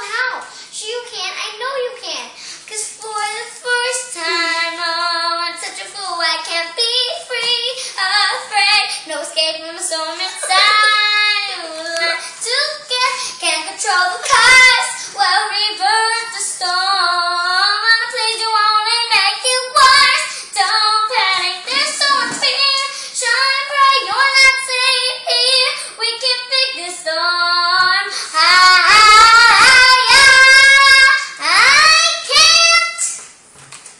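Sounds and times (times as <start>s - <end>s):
girl singing a show tune: 0.0s - 33.2s.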